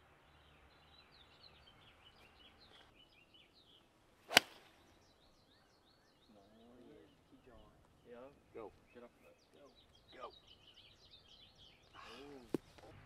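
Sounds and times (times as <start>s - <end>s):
golf club striking ball: 4.3s - 4.8s.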